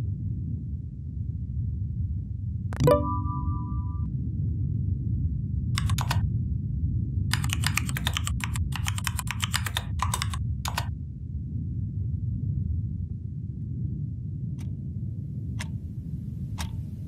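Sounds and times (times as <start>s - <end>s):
steady low hum: 3.6s - 17.0s
computer keyboard typing: 5.8s - 6.2s, 7.3s - 10.9s.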